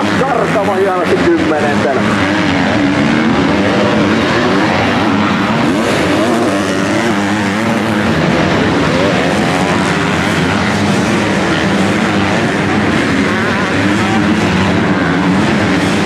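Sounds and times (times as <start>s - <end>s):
motocross bike engines revving: 0.0s - 16.0s.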